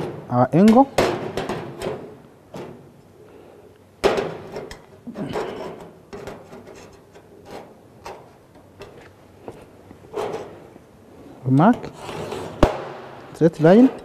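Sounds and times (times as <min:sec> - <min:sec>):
metal scraping on worktable: 0:11.8 - 0:12.6.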